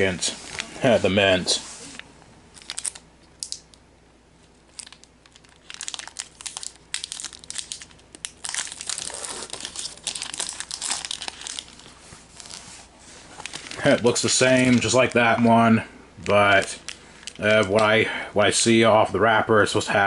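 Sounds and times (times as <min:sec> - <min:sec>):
foil wrapper tearing and crinkling: 0:02.6 - 0:03.6, 0:04.7 - 0:12.7, 0:13.4 - 0:15.4.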